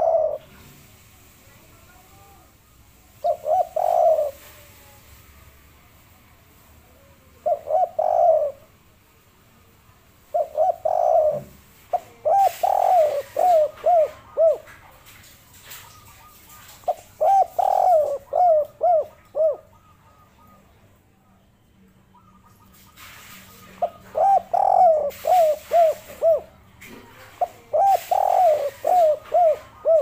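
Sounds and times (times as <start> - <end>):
dove cooing: 0.0 - 0.6, 3.2 - 4.7, 7.4 - 8.7, 10.3 - 14.9, 15.7 - 20.7, 22.1 - 30.0
small birds chirping: 3.2 - 5.0, 10.4 - 30.0.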